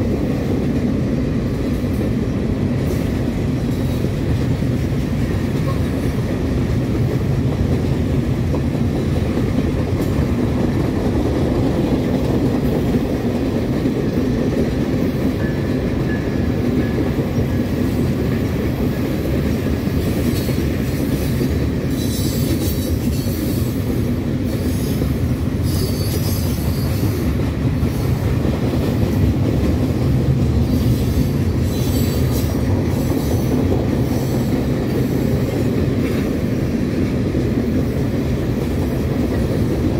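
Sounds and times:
freight train wheels rumbling on rail: 0.0 - 39.9
high-pitched wheel squeal: 25.6 - 27.1.

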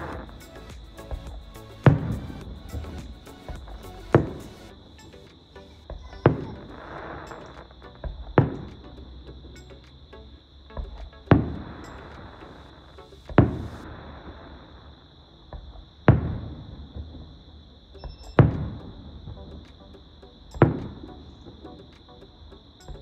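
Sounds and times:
fireworks bursting with echo: 0.0 - 8.8, 10.8 - 17.4.

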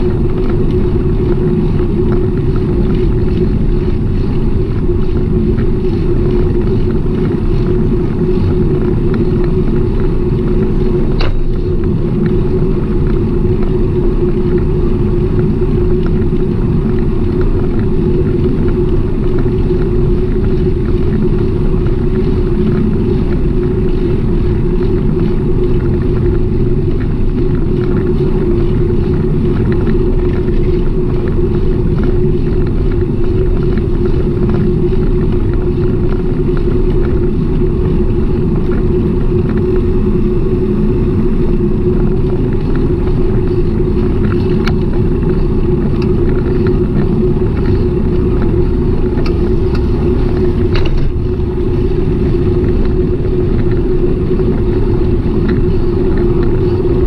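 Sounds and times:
constant hum: 0.0 - 57.0
wind and road noise: 0.0 - 57.0.

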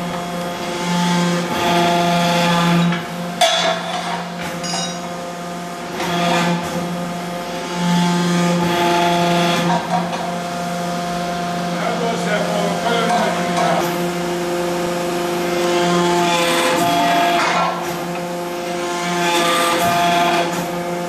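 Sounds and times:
pipe press machinery humming: 0.0 - 21.0
metal pipe clattering and ringing: 4.6 - 5.1.

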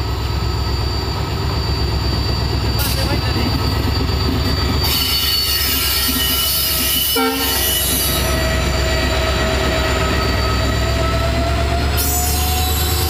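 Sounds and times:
diesel locomotive engine throb: 0.0 - 13.0
high-pitched whining tones: 0.0 - 13.0.

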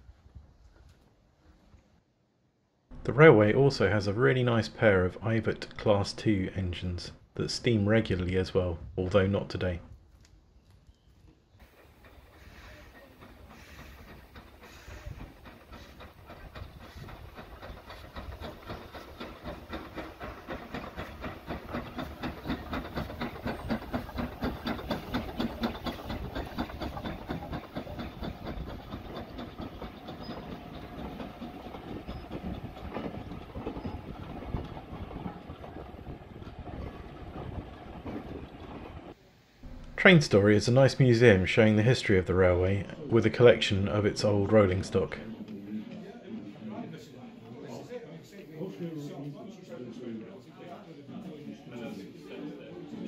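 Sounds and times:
steam hiss: 11.6 - 33.1
steam locomotive exhaust beats: 11.6 - 42.2
train wheels clicking on rail joints: 11.6 - 42.2.

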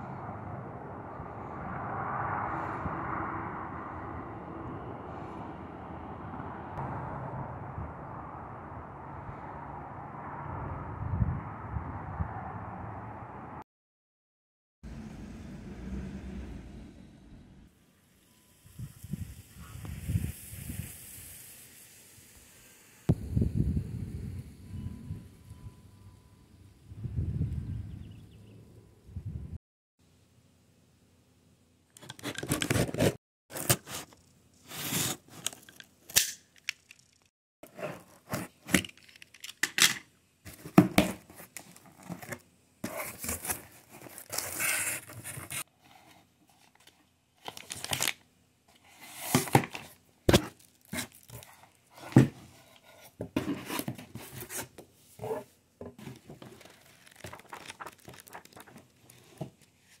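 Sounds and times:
cardboard box tearing: 40.5 - 45.6
plastic bags crinkling: 56.4 - 59.4.

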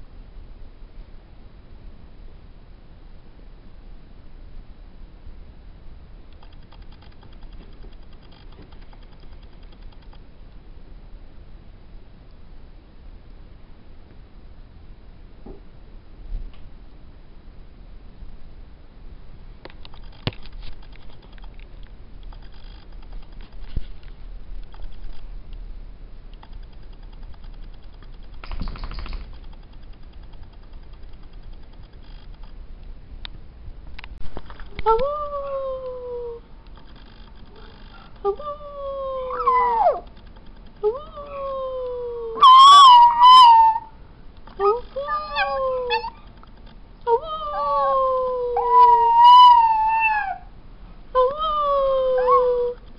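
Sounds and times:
low steady rumble: 0.0 - 52.9
dog puppy howling: 34.8 - 36.4, 37.6 - 40.1, 40.8 - 44.0, 44.6 - 46.3, 47.1 - 50.5, 51.2 - 52.8.

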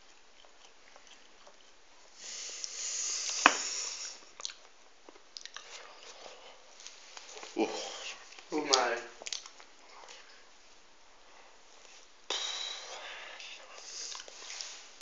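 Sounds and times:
person hissing breath: 2.2 - 4.2, 12.3 - 14.9
chewing clicks: 8.7 - 10.2.

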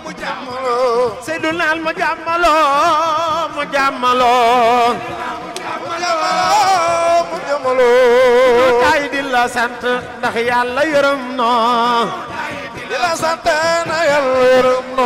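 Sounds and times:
man chanting into a microphone: 5.8 - 15.0.

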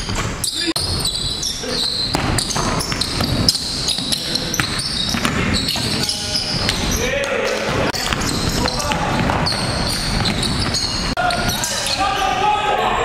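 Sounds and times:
players' voices: 0.4 - 13.0
basketball dribbling on gym floor: 2.1 - 6.9, 8.0 - 11.1.

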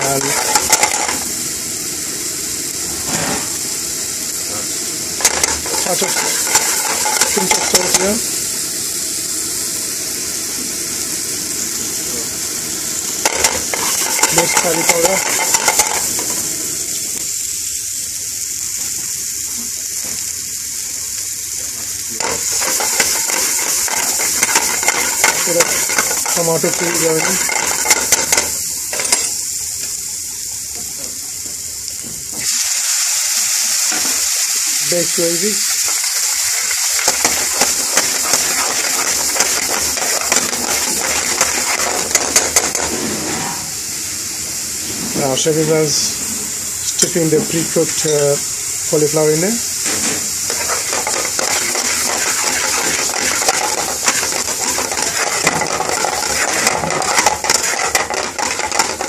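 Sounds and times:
food sizzling in hot oil: 0.0 - 59.0
liquid hissing in hot pan: 0.0 - 59.0
metal ladle scraping pan: 5.2 - 8.0, 22.2 - 29.2, 37.0 - 43.6, 50.5 - 59.0.

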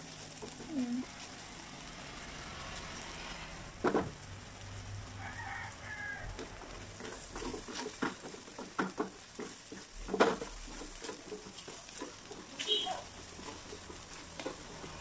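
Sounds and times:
food sizzling in oil: 0.0 - 15.0
spatula knocking on pan: 6.4 - 15.0.

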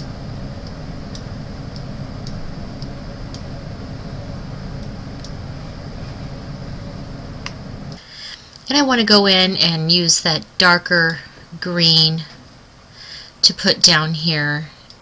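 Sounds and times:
low room hum: 0.0 - 15.0.

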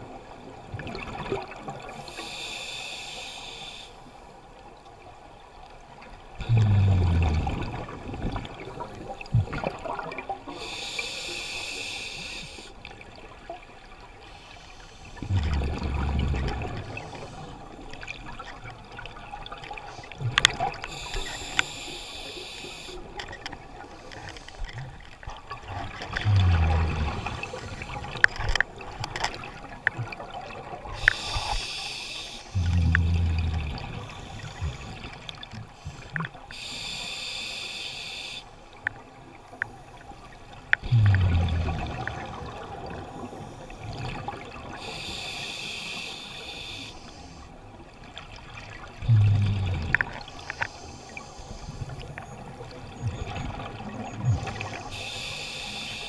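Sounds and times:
hissing regulator inhale: 1.9 - 4.1, 10.5 - 12.8, 20.8 - 23.2, 31.0 - 38.6, 44.8 - 47.5, 49.1 - 52.1, 54.4 - 56.0
rush of bubbles: 15.2 - 17.4, 25.4 - 28.9.

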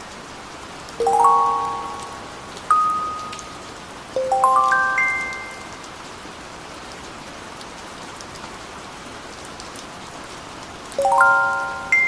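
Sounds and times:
steady rain falling: 0.0 - 12.0
bell-like chime notes: 1.0 - 3.6, 4.2 - 5.8, 11.0 - 12.0.

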